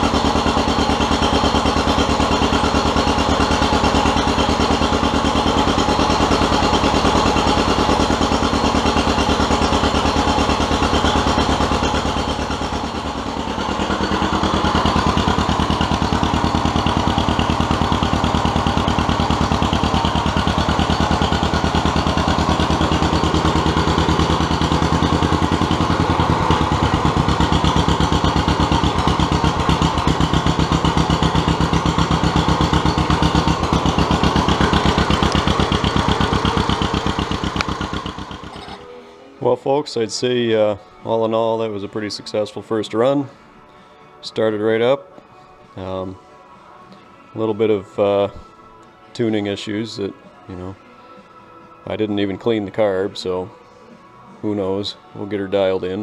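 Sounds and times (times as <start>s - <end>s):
two-cylinder engine running: 0.0s - 38.9s.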